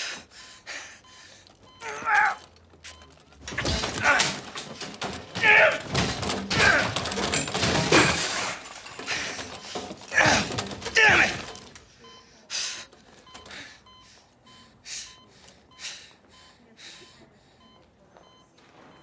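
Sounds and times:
things knocked about clattering: 0:01.7 - 0:11.8
man grunting and groaning: 0:06.5 - 0:07.2, 0:10.1 - 0:11.6.

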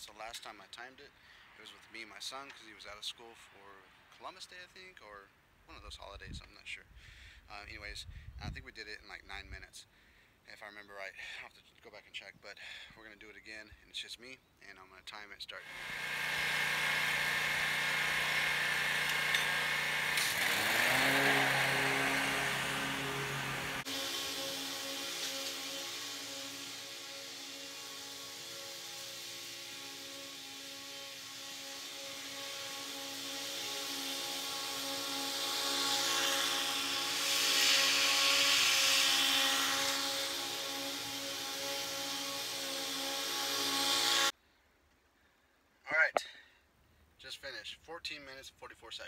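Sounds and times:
lawn mower engine running: 0:15.6 - 0:44.3
rushing hiss: 0:15.7 - 0:44.3.

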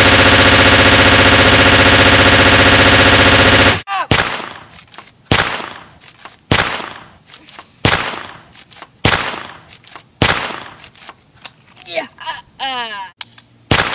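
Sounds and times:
echoing shotgun blast effects: 0:00.0 - 0:04.7, 0:05.3 - 0:05.9, 0:06.5 - 0:07.2, 0:07.8 - 0:08.4, 0:09.0 - 0:09.6, 0:10.2 - 0:10.8, 0:13.7 - 0:13.9.

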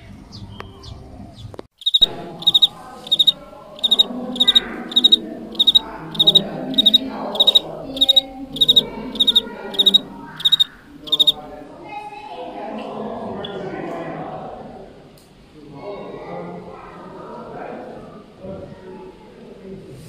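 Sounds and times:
cricket chirping: 0:01.8 - 0:11.4
low background murmur: 0:02.0 - 0:20.0.

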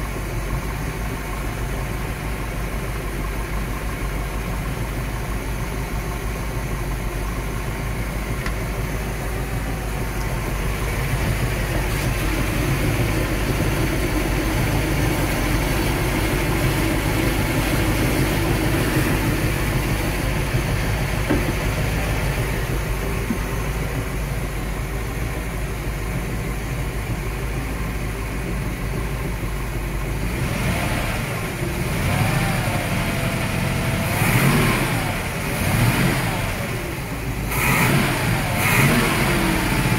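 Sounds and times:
boat engine running: 0:00.0 - 0:39.9.

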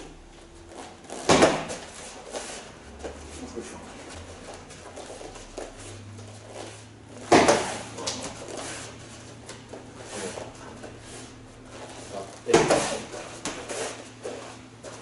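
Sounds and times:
boxing gloves hitting padded mitts: 0:00.7 - 0:02.2, 0:04.4 - 0:08.8, 0:12.4 - 0:15.0.

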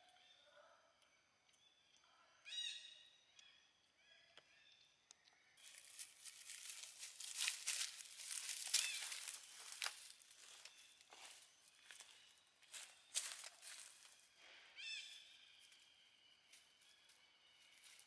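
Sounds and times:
dry leaves crackling underfoot: 0:05.6 - 0:14.3, 0:17.6 - 0:18.0.

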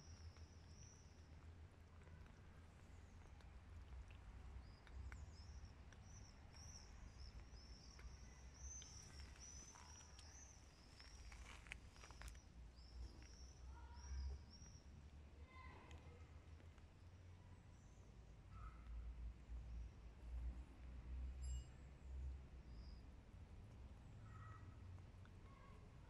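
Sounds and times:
bird chirping faintly: 0:00.0 - 0:20.0.

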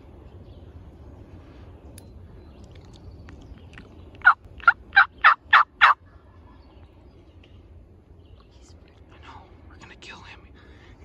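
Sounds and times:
turkey yelps: 0:04.2 - 0:06.0.

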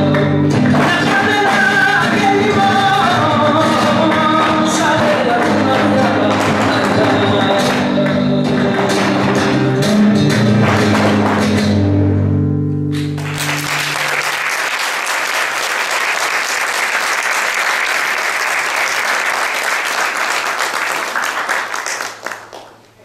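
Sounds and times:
flamenco music: 0:00.0 - 0:23.0
audience applause: 0:13.1 - 0:22.8.

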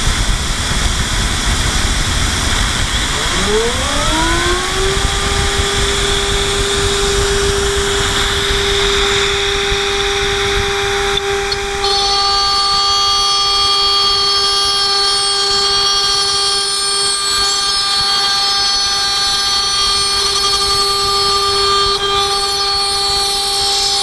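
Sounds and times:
spindle high whine: 0:00.0 - 0:24.0
metal cutting ringing tones: 0:02.9 - 0:24.0.

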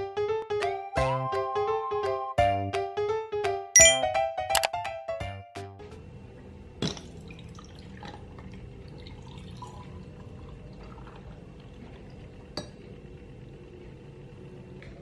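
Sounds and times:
juice pouring into a glass: 0:07.0 - 0:13.0.

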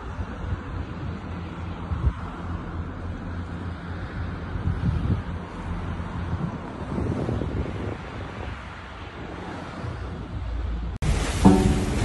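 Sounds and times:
choppy lake water: 0:00.0 - 0:12.0
wind blowing on microphone: 0:04.0 - 0:12.0.

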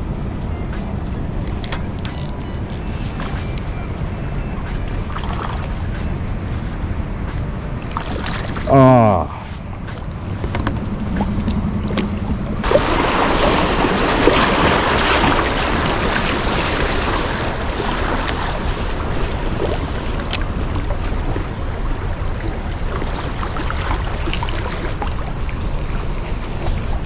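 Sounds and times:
rushing river current: 0:00.9 - 0:27.0
wind buffeting microphone: 0:09.6 - 0:27.0.

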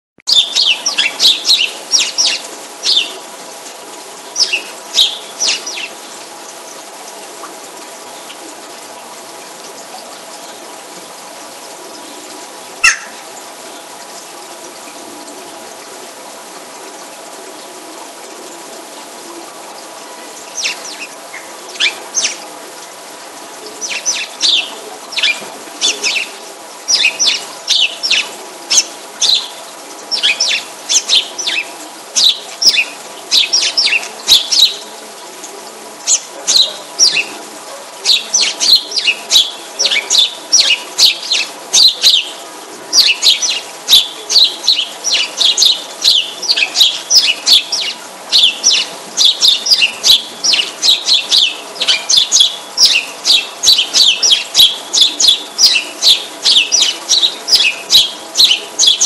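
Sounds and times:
small bird chirping: 0:00.3 - 0:03.1, 0:04.4 - 0:05.9, 0:12.8 - 0:13.2, 0:20.5 - 0:22.4, 0:23.8 - 0:26.3, 0:26.9 - 0:29.5, 0:30.1 - 0:34.8, 0:38.1 - 0:42.3, 0:43.0 - 0:59.0
steady hum: 0:00.3 - 0:59.0.

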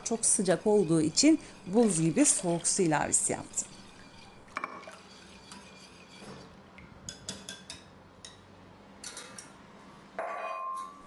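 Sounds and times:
whisk scraping glass bowl: 0:00.0 - 0:06.6.

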